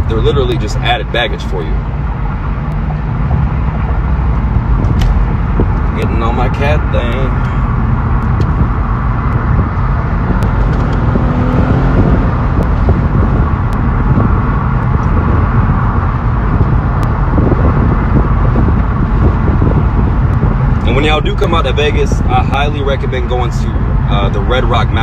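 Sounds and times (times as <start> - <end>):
wind and road noise: 0.0 - 25.0.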